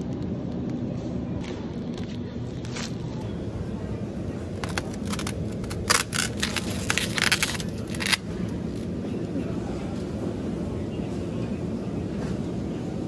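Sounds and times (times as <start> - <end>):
steady low hum: 0.0 - 13.0
plastic packaging crinkling: 4.6 - 8.8.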